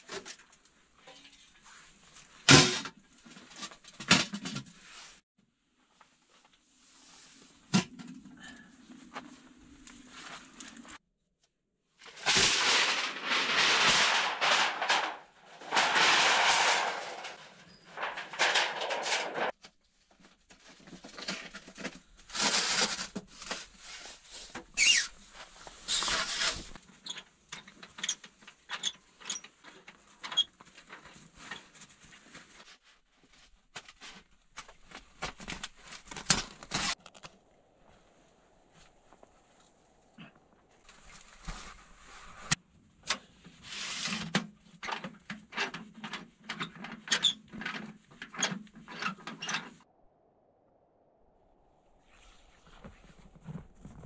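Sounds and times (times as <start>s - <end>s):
metal pipe sliding and scraping: 12.2s - 19.5s.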